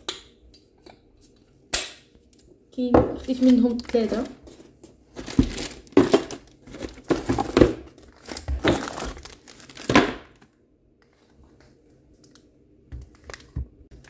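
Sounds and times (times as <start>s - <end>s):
plastic shrink-wrap crinkling: 3.2s - 10.5s, 13.0s - 14.0s.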